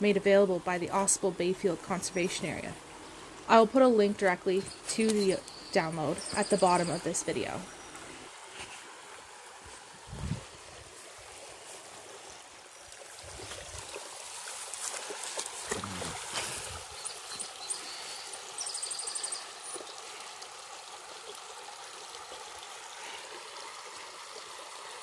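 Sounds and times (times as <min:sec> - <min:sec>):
creek trickling: 0:00.0 - 0:25.0
soft splashes: 0:07.9 - 0:18.2
dog wading through water: 0:10.8 - 0:24.6.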